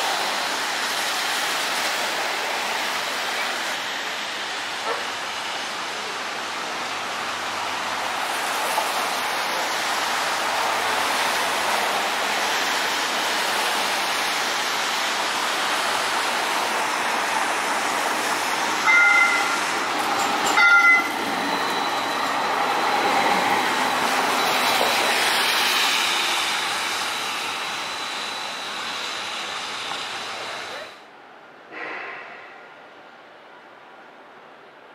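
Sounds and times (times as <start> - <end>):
tyres hissing on wet road: 0.0 - 31.1
streetcar passing: 0.0 - 34.9
streetcar horn toots: 18.8 - 19.7, 20.6 - 21.1.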